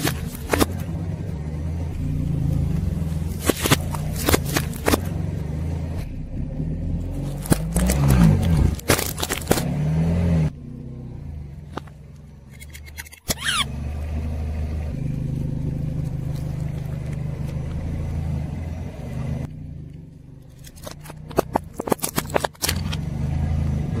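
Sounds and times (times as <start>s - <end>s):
plastic cracking under tyre: 0.0s - 0.9s, 3.2s - 5.1s, 7.2s - 9.7s, 20.5s - 23.1s
car engine idling: 0.0s - 24.0s
brief squeak: 12.5s - 13.7s.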